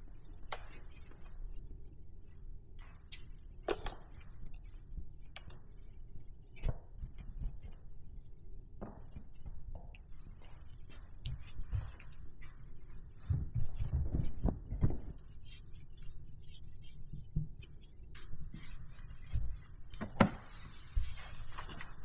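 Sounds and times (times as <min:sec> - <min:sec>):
cloth rubbing car paint: 0:10.5 - 0:22.0.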